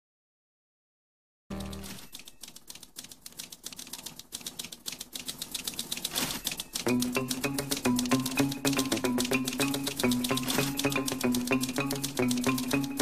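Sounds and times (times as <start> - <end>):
typewriter clacking: 1.5 - 13.0
pitched music: 6.8 - 13.0.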